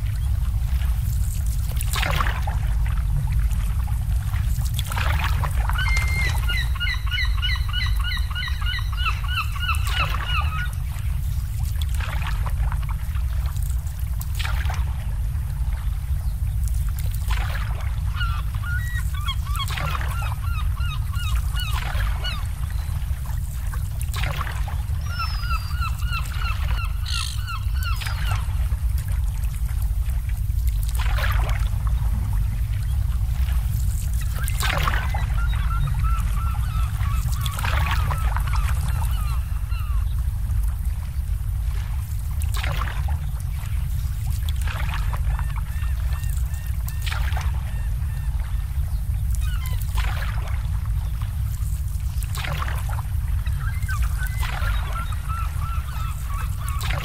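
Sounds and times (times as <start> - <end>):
wind rumble: 0.0 - 45.4
water birds calling: 0.0 - 57.0.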